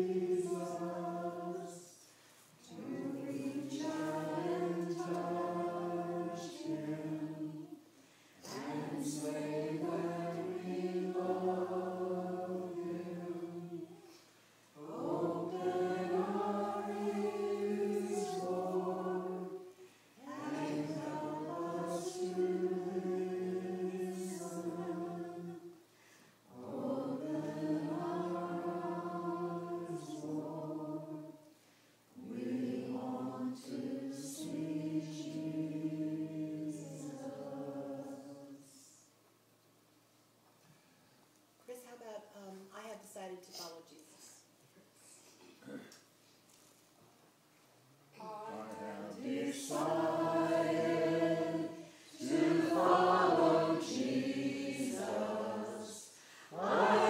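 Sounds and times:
church choir singing a hymn: 0.0 - 14.2, 14.8 - 25.9, 26.5 - 31.6, 32.2 - 39.0, 48.2 - 57.0.

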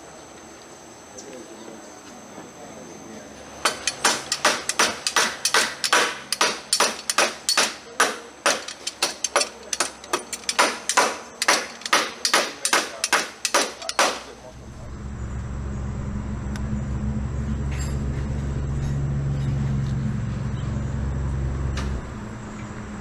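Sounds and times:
hammer striking wooden planks: 3.6 - 14.4.

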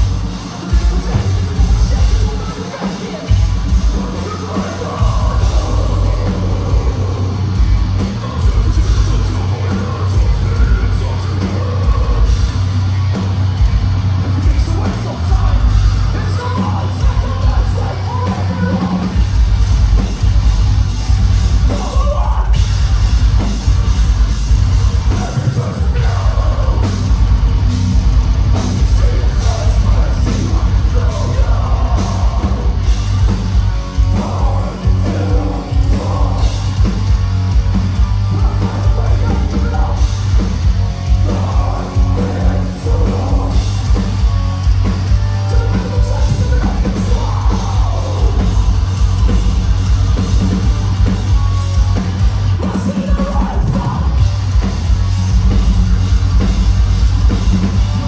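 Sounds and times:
distorted guitars and bass: 0.0 - 58.0
person yelling and singing: 0.7 - 7.5, 14.3 - 19.2, 21.6 - 22.6, 25.0 - 27.0, 28.8 - 32.8, 34.0 - 36.7, 38.3 - 40.2, 41.1 - 43.8, 45.4 - 48.8, 52.6 - 54.2.

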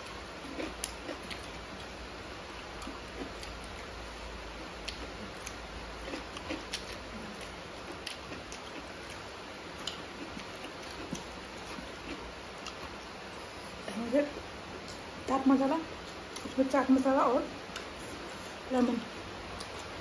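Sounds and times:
low background hiss: 0.0 - 20.0
chewing and mouth smacks: 0.4 - 3.9, 4.7 - 13.1, 16.3 - 16.6, 19.5 - 20.0.

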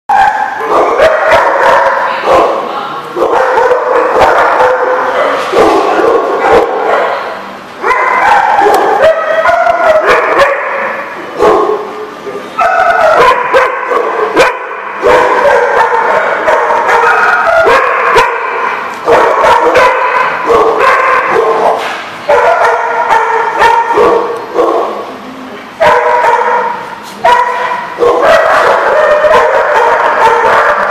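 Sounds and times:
dogs yipping and barking: 0.1 - 2.6, 3.2 - 12.0, 12.6 - 25.1, 25.8 - 30.9
dogs whining: 15.1 - 18.3.

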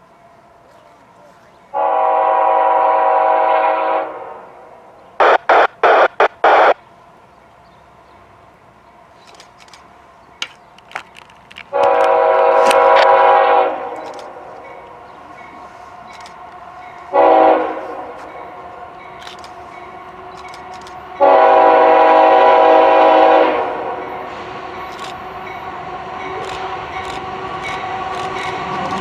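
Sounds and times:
locomotive air horn blasts: 1.8 - 6.7, 11.7 - 14.5, 17.1 - 18.2, 21.2 - 24.9
loud rushes of noise: 5.2 - 6.8.

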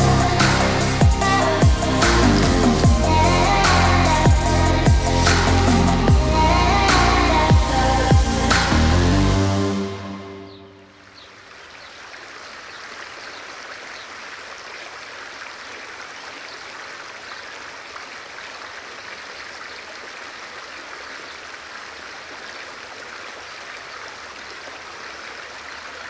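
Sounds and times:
river water over stones: 10.9 - 26.0.

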